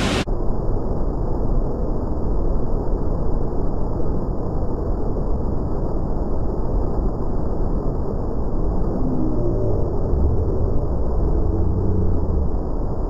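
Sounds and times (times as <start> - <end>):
waterfall rushing: 0.0 - 0.2.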